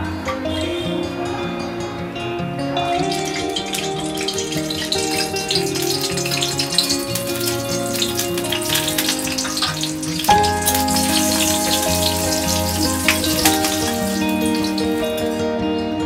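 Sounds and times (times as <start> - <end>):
background music: 0.0 - 16.0
chilies sizzling in hot oil: 3.1 - 15.4.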